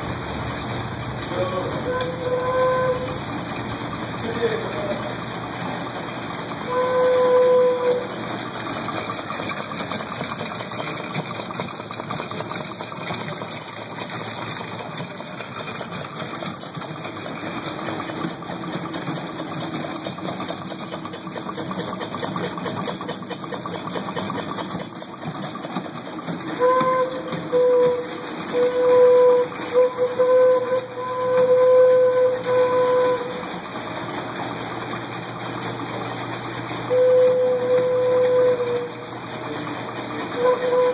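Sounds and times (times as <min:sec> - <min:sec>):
air compressor running: 0:00.0 - 0:40.9
organ pipe note: 0:01.3 - 0:03.2, 0:06.6 - 0:08.2, 0:26.6 - 0:33.4, 0:36.9 - 0:39.1, 0:40.3 - 0:40.9.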